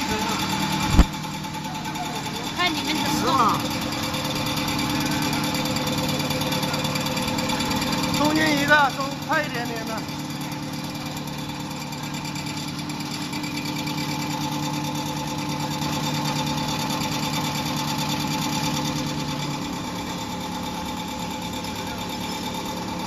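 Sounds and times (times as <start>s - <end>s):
machine motors and rollers droning: 0.0s - 23.0s.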